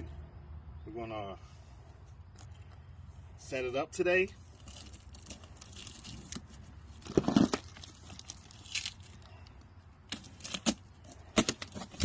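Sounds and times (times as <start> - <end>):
cardboard and tape tearing: 4.5 - 9.2, 10.1 - 12.0.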